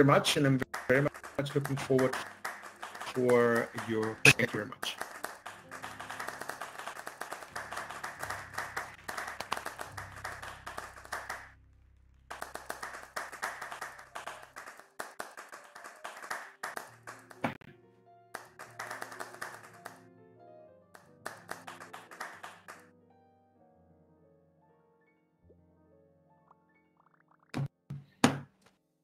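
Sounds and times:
audience clapping: 0:00.0 - 0:11.6, 0:12.3 - 0:17.7, 0:18.4 - 0:20.0, 0:21.0 - 0:22.8
background music: 0:00.0 - 0:28.6.

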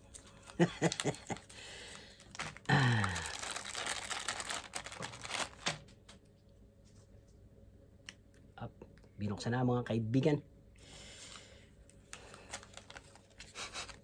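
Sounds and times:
plastic and paper crinkling: 0:00.0 - 0:06.1, 0:11.2 - 0:14.0.

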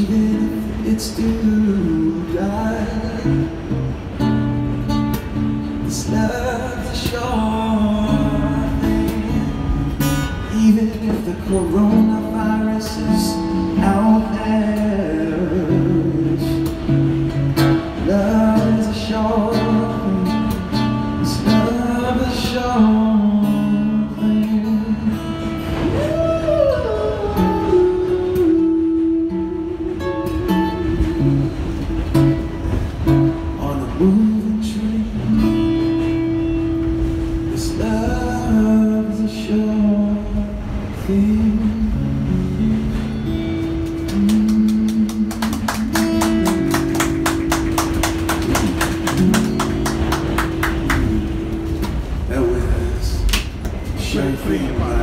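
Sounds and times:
man singing: 0:00.0 - 0:03.8, 0:05.8 - 0:31.3, 0:33.5 - 0:36.3, 0:37.5 - 0:42.9, 0:43.8 - 0:47.5, 0:52.3 - 0:53.3, 0:54.0 - 0:55.0
acoustic guitar strumming: 0:00.0 - 0:52.4.

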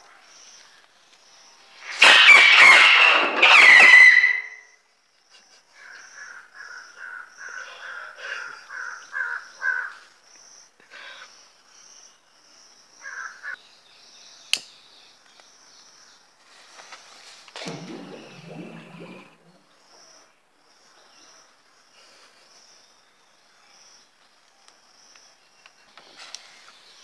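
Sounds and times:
firework rocket hissing and whistling: 0:01.8 - 0:04.4.

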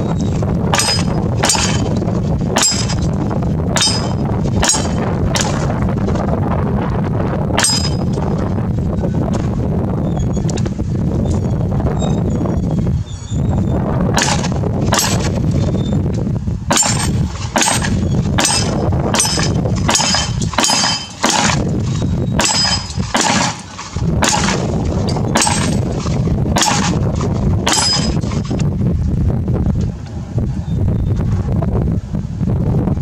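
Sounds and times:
steel plates ringing: 0:00.0 - 0:02.0, 0:02.6 - 0:03.1, 0:03.7 - 0:05.7, 0:07.6 - 0:08.2, 0:16.7 - 0:26.0, 0:26.6 - 0:27.0, 0:27.6 - 0:28.4
wind noise on microphone: 0:00.0 - 0:33.0
pistol shots: 0:03.8 - 0:05.7, 0:14.2 - 0:15.4, 0:16.7 - 0:21.7, 0:22.4 - 0:24.8.

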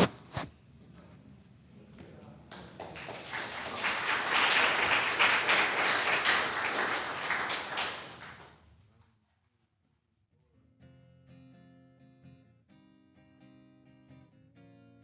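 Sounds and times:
congregation applauding: 0:02.5 - 0:08.7.

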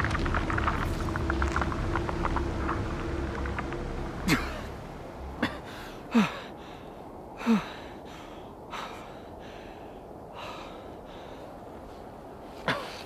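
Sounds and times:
man breathing hard: 0:05.7 - 0:11.7.

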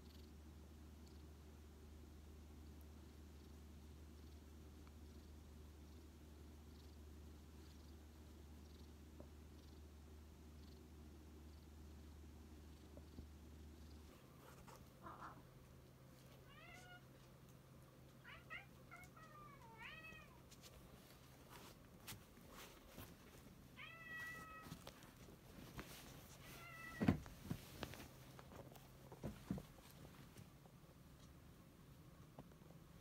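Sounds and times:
cat meowing and chirping: 0:23.8 - 0:24.8.

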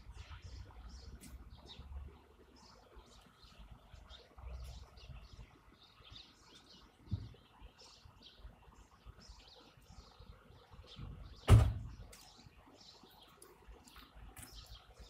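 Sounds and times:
small birds chirping: 0:00.0 - 0:15.0
loud thump: 0:11.5 - 0:11.9.

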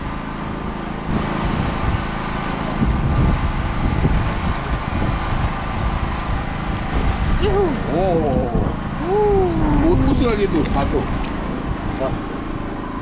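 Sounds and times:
boat engine idling: 0:00.0 - 0:13.0.

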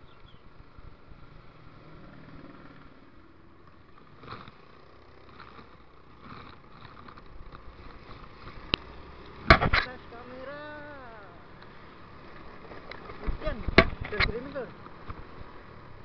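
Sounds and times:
passing traffic: 0:00.0 - 0:16.0
scooter engine and tyre noise: 0:00.0 - 0:16.0.

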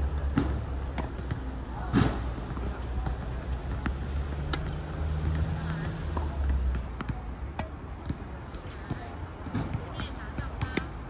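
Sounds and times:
tennis balls knocking on court: 0:00.2 - 0:10.9.

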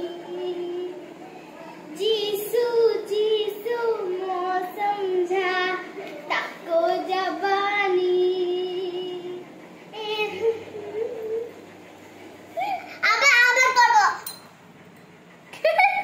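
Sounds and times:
girl singing unaccompanied: 0:00.0 - 0:11.6.

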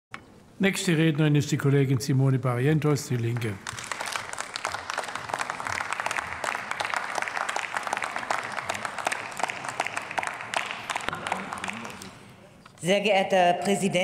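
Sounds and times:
people applauding: 0:03.1 - 0:12.3.

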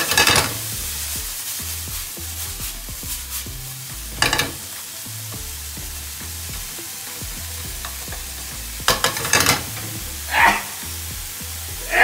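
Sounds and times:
food sizzling in oil: 0:00.0 - 0:12.0
spatula clacking against pan: 0:04.2 - 0:04.8, 0:06.5 - 0:10.7
person sneezing: 0:10.3 - 0:10.8.

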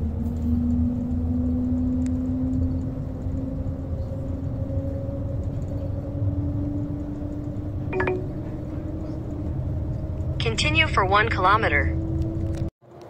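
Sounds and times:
train cabin rumble and hum: 0:00.0 - 0:12.7
brief ringing blip: 0:08.0 - 0:08.3.

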